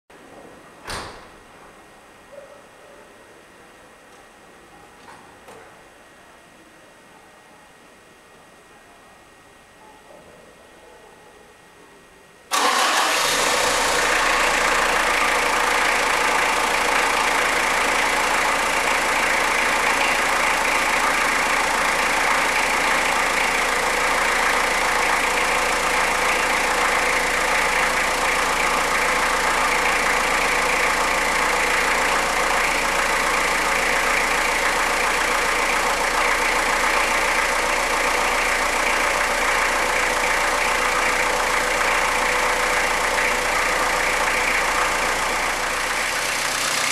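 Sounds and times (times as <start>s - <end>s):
car engine starting and idling: 12.5s - 46.9s.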